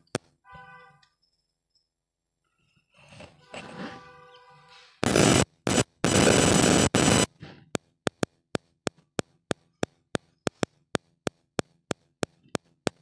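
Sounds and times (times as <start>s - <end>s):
loud burst of noise: 5.0s - 7.3s
sharp ticks: 5.0s - 13.0s.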